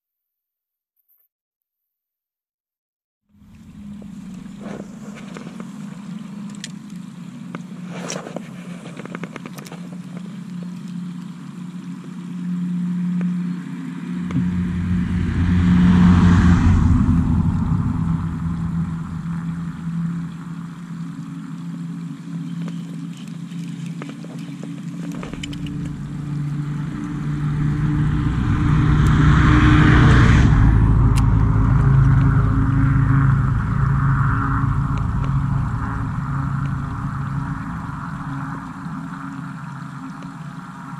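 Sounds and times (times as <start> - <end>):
steady low hum: 3.3 - 40.9
vehicle passing by: 13.9 - 21.9, 25.1 - 40.8
pickup truck passing: 14.1 - 21.2, 25.3 - 39.9.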